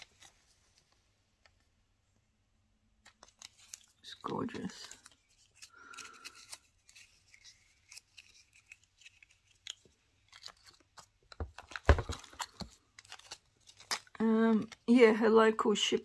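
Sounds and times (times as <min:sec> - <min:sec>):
light plastic clicks and rustles: 0:03.0 - 0:14.9.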